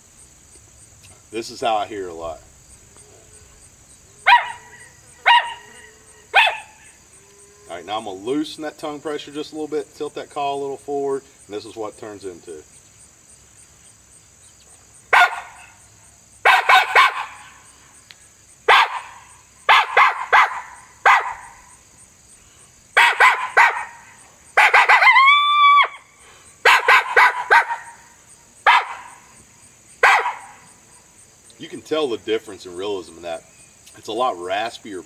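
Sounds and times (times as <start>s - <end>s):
raspy coyote barks from a call: 4.2s - 7.0s, 15.1s - 15.8s, 16.4s - 17.7s, 18.6s - 21.8s, 23.0s - 25.2s, 26.6s - 29.3s, 30.0s - 30.7s.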